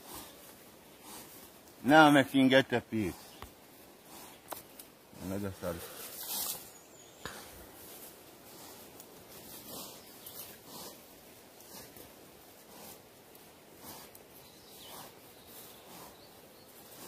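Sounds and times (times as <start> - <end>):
knife scraping in leaf litter: 5.8 - 6.8.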